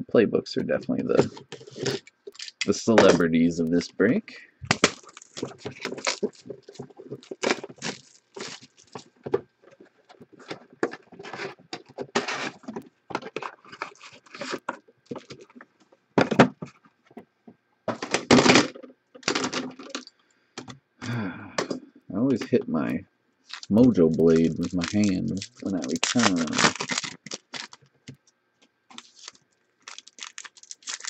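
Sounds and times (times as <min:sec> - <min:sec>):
foil packs crinkling: 0:01.1 - 0:03.2, 0:04.6 - 0:15.6, 0:23.5 - 0:28.2, 0:28.9 - 0:31.0.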